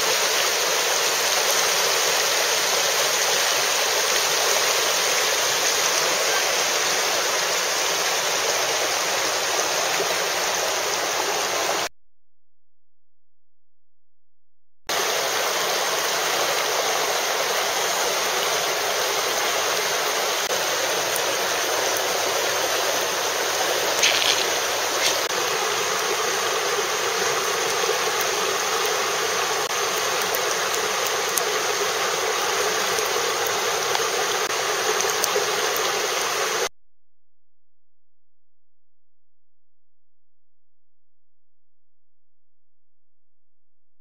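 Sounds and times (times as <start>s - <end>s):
water rushing over rapids: 0.0s - 11.9s, 15.0s - 36.7s.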